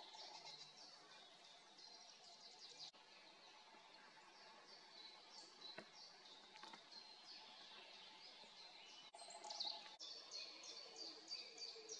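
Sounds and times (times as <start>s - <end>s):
robin singing: 4.3s - 11.9s.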